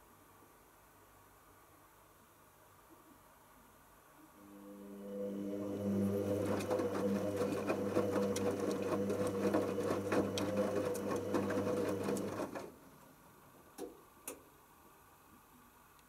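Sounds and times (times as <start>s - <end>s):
washing machine motor hum: 4.4s - 13.1s
laundry knocking and sloshing: 5.7s - 12.8s.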